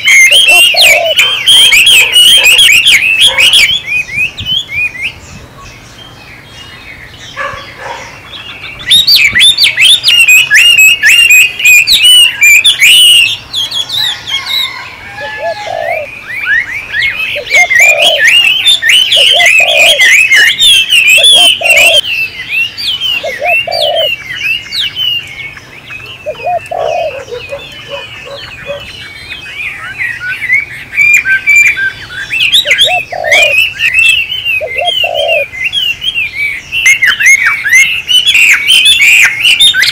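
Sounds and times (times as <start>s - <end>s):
low-pitched bird hooting: 0.0s - 3.9s, 9.0s - 13.3s, 14.0s - 22.0s, 23.2s - 24.2s, 26.2s - 28.9s, 32.5s - 35.5s
songbirds chirping and twittering: 0.0s - 39.9s.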